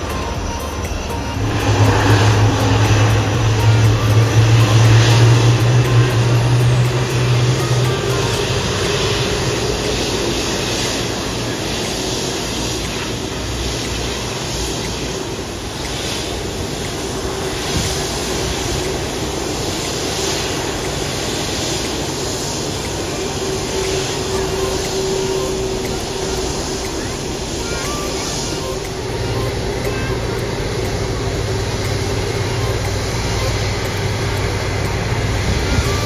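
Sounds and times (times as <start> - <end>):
airliner taxiing rumble and hiss: 0.0 - 36.0
steady engine hum: 0.0 - 36.0.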